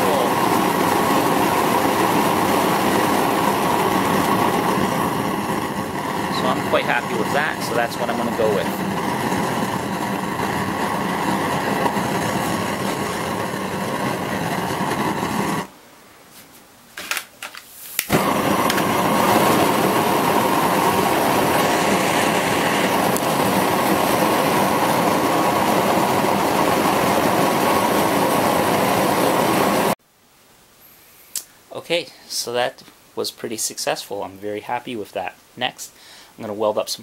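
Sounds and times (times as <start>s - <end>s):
propane burner rushing: 0.0s - 15.7s, 18.0s - 30.0s.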